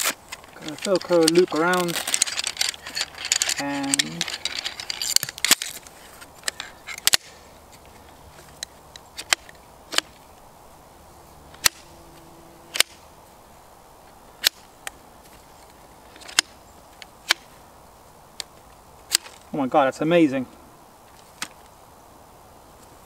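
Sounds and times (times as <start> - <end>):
chair poles clicking into sockets: 0.0 - 5.8.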